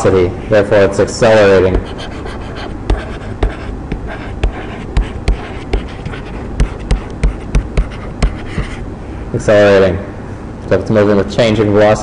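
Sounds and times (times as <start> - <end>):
stylus tapping on tablet: 2.9 - 8.8.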